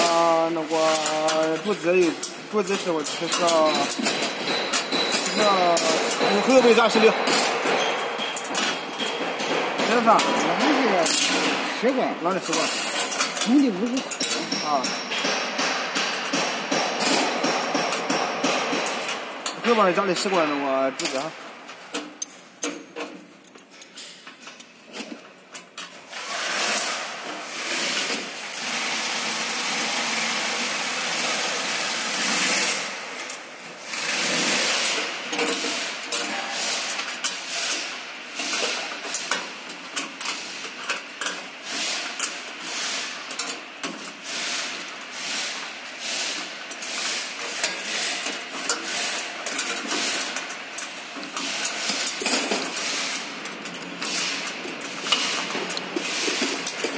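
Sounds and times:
rapid metallic rattling: 0.0 - 21.5.

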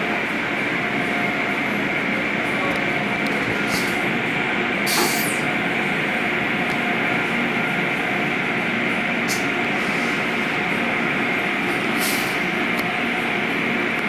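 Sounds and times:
pumps and machinery droning: 0.0 - 14.0
high-pressure water spray hissing: 4.9 - 5.4.

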